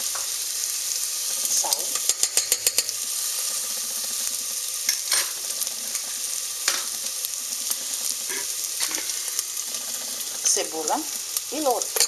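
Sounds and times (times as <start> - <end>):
garlic sizzling in hot oil: 0.0 - 12.0
spoon scraping a pot: 1.9 - 3.1, 8.0 - 9.4.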